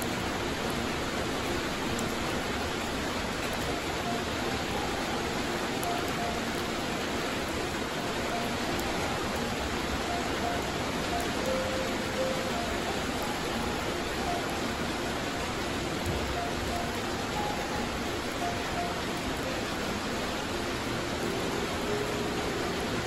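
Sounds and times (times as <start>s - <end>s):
heavy rain on concrete and grass: 0.0s - 23.0s.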